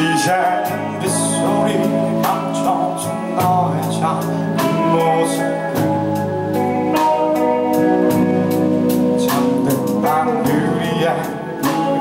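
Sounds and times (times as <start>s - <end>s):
person singing: 0.0s - 6.3s, 9.0s - 12.0s
rock band playing: 0.0s - 12.0s.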